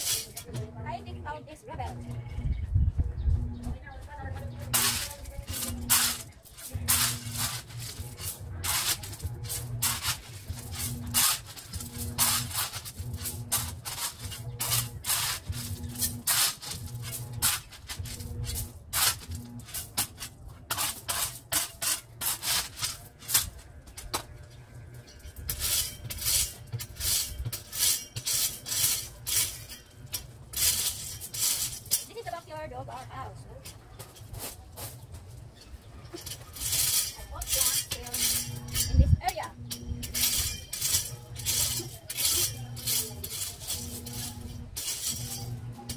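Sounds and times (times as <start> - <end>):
garden tool scraping gravel: 0.0 - 2.4, 3.4 - 45.9.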